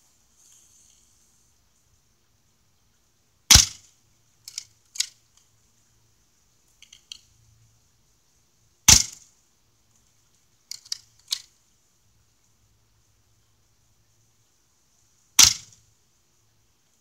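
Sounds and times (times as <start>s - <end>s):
airsoft gun shots: 3.5s - 3.9s, 8.9s - 9.2s, 15.4s - 15.8s.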